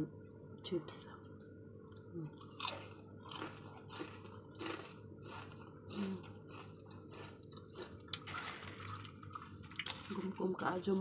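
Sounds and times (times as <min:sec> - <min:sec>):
crunching potato chips: 0:02.3 - 0:11.0.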